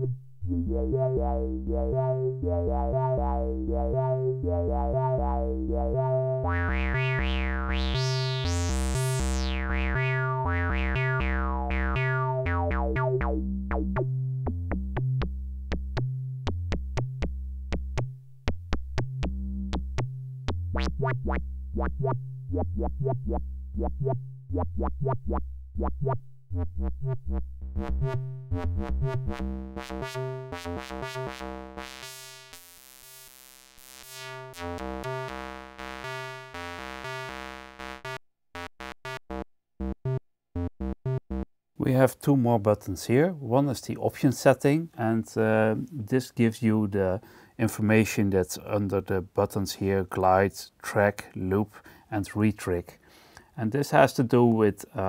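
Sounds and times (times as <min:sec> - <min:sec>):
synthesizer repeating sequence: 0:00.6 - 0:13.3, 0:27.8 - 0:32.1, 0:34.0 - 0:41.4.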